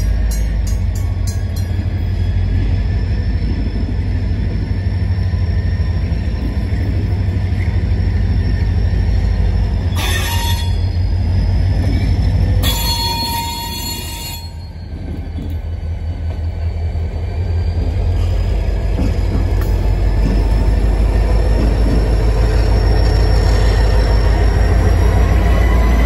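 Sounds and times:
diesel locomotive rumbling: 0:00.0 - 0:26.0
high-pitched squeals: 0:04.9 - 0:15.0.

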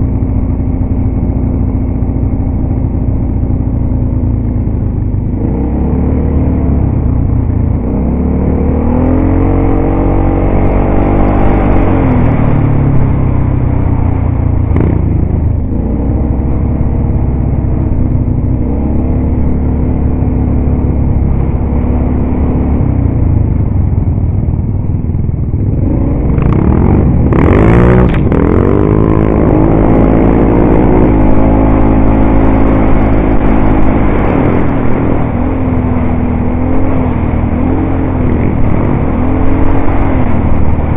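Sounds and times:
quad bike engine revving: 0:07.8 - 0:13.1, 0:14.7 - 0:22.9, 0:25.7 - 0:40.9.

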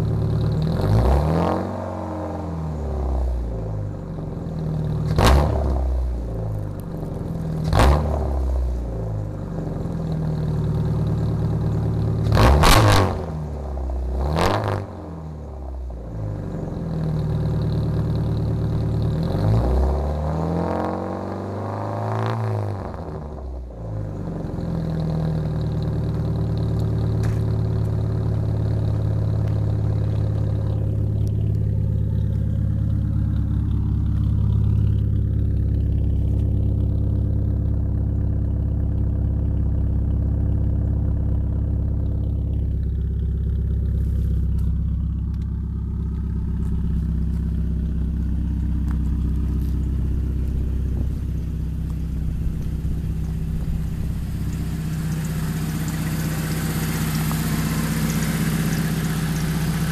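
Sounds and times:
car engine idling through exhaust: 0:00.0 - 0:59.9
engine mechanical clatter: 0:24.6 - 0:59.9.

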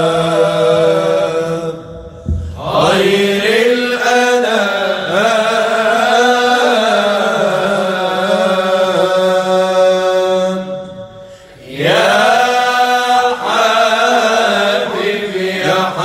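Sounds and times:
men singing unaccompanied: 0:00.0 - 0:01.8, 0:02.6 - 0:10.6, 0:11.7 - 0:16.0.

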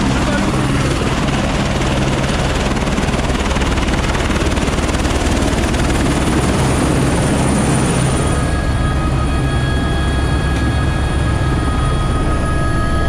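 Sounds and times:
helicopter rotor and engine: 0:00.0 - 0:13.0.

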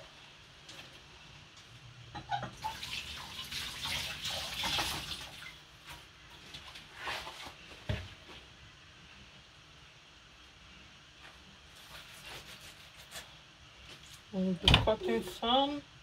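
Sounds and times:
water running from tap: 0:02.5 - 0:05.6.

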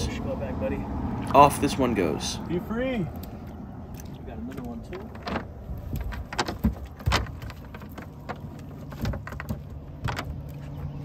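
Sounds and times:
clicks and rattles of net: 0:04.0 - 0:10.9.

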